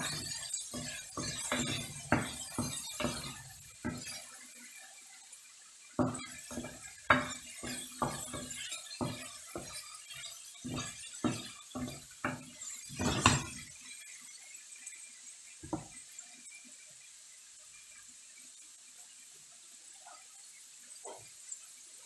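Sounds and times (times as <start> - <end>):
hard objects clinking and knocking: 10.7 - 13.6.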